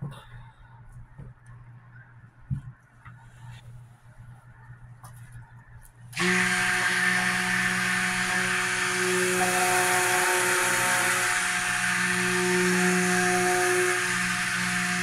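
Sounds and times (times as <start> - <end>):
stick blender running: 6.2 - 15.0.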